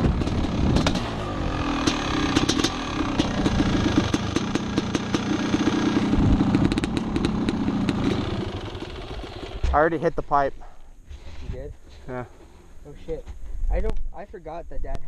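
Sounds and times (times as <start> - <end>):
dirt bike engine idling: 0.0 - 10.5, 12.0 - 13.2.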